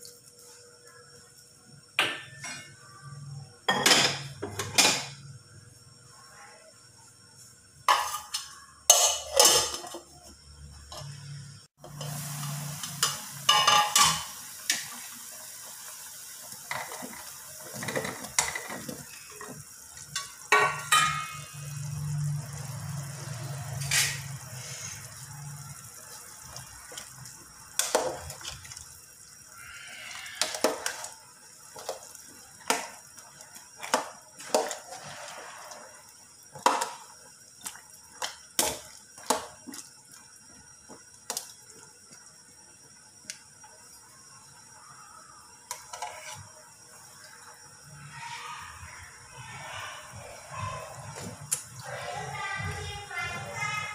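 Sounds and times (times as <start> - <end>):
steady hiss: 11.8 - 17.6
clinks and knocks on steel pot: 13.0 - 14.3, 20.2 - 21.5.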